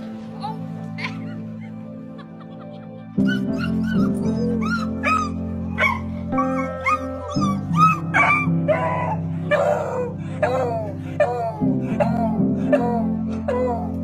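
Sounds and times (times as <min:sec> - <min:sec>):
background music: 0:00.0 - 0:14.0
dog whining and yelping: 0:03.2 - 0:11.3.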